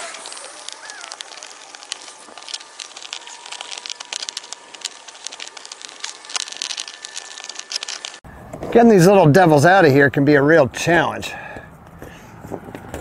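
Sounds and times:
plastic light clicks and crackles: 0.2 - 8.2.

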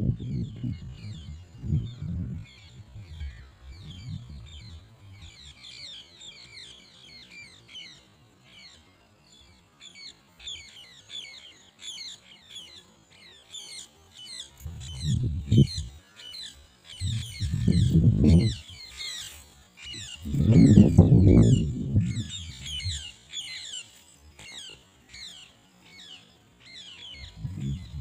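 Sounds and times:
low rumble: 0.0 - 5.6, 14.6 - 15.9, 17.0 - 18.8, 20.0 - 23.1, 27.2 - 28.0
small birds chirping: 0.0 - 28.0.

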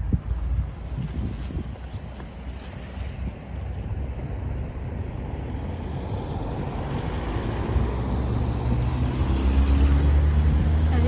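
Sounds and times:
vehicle engine hum: 0.0 - 11.0
wind rumbling on microphone: 0.0 - 11.0.

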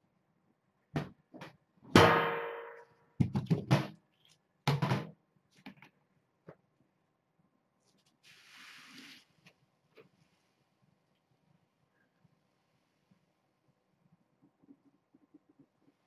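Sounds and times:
hard objects knocking and clattering: 3.2 - 4.0.

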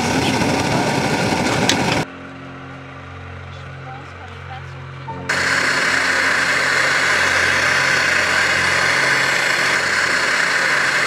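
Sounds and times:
gas stove burner hissing: 5.3 - 11.0.

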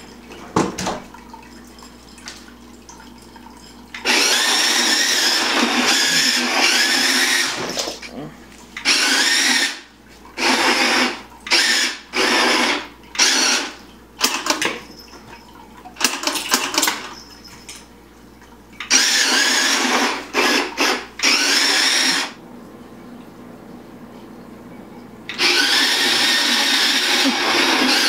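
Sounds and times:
toy tank motors whining: 4.0 - 7.9, 8.8 - 9.8, 10.4 - 13.8, 18.9 - 22.4, 25.3 - 28.0.

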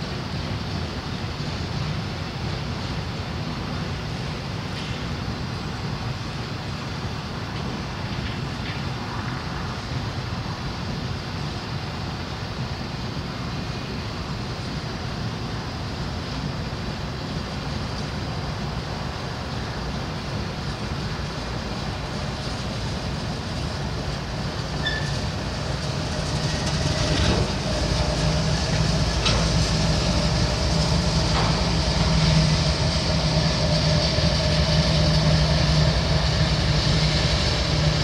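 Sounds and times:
train wheels rumbling on rail: 0.0 - 38.0
low steady drone: 9.0 - 38.0.

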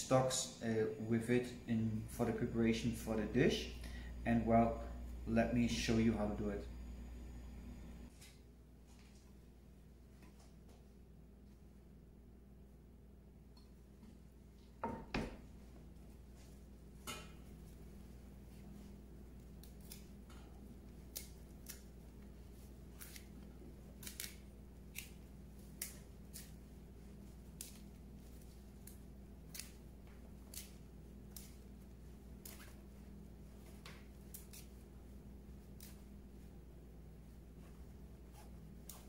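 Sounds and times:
low steady hum: 0.0 - 39.0
plant stalks snapping: 19.6 - 20.1, 21.0 - 21.9, 23.0 - 26.6, 27.5 - 31.7, 33.8 - 34.8, 35.7 - 36.1.

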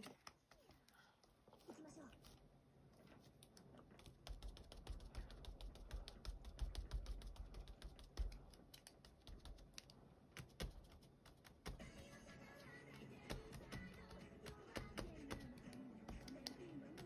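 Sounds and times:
dauber tapping on paper: 4.0 - 17.0.

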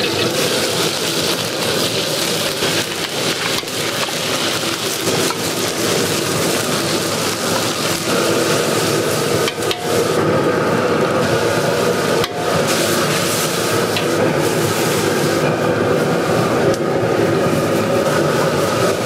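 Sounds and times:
pork and onion sizzling in oil: 0.0 - 19.0.

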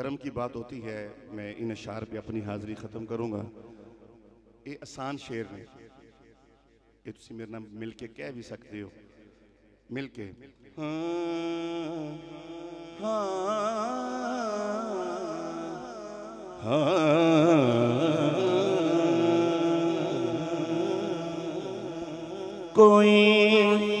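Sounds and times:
man singing into a microphone: 10.8 - 24.0.

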